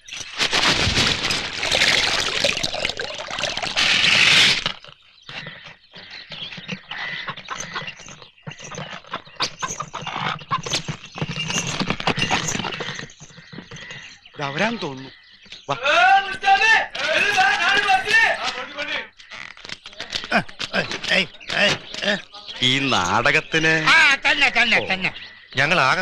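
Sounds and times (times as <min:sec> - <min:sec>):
wooden cart clattering: 0:00.2 - 0:02.3
oxen hooves clopping: 0:00.2 - 0:14.4.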